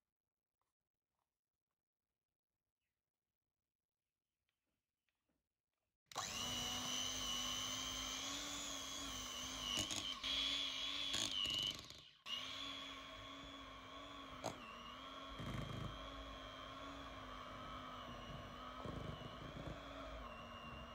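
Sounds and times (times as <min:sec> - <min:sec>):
electric hand mixer whining: 0:06.1 - 0:20.9.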